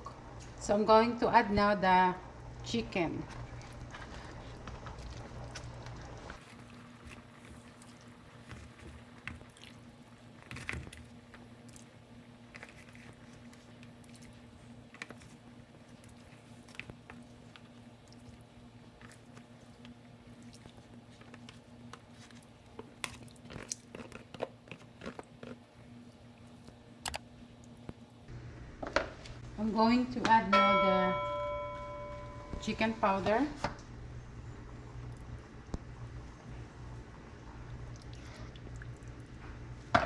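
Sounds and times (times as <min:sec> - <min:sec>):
low steady hum: 0:00.0 - 0:40.0
soft clicks and wet squishes: 0:03.3 - 0:28.3, 0:37.6 - 0:39.6.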